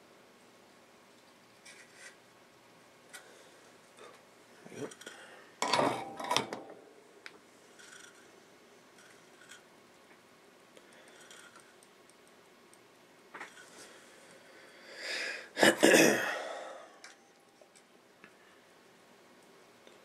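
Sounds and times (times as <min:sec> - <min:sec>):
faint clicks and taps: 0:10.8 - 0:13.8
person breathing out loudly: 0:14.5 - 0:15.6.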